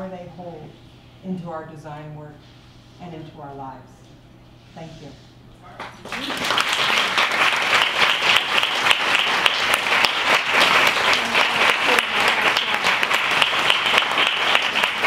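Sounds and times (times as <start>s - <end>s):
audience applauding: 5.8s - 15.0s.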